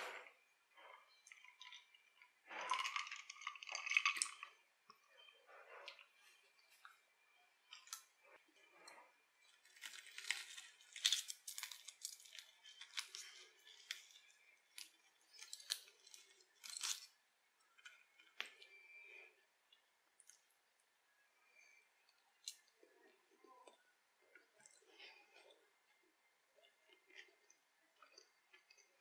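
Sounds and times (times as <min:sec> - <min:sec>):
crispy breading crunching: 0:00.8 - 0:04.5, 0:05.9 - 0:19.0.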